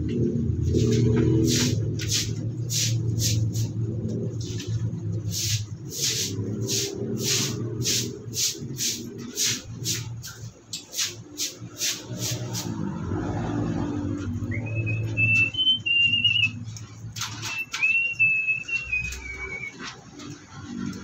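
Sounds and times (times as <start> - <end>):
scrubbing on wet concrete floor: 0.6 - 14.4.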